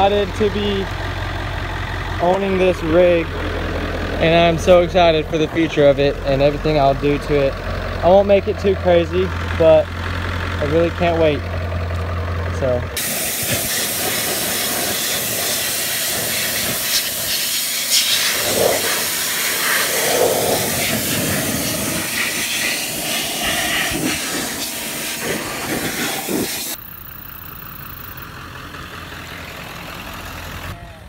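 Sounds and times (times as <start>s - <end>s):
diesel engine idling: 0.0s - 31.0s
strong hiss: 13.0s - 26.8s.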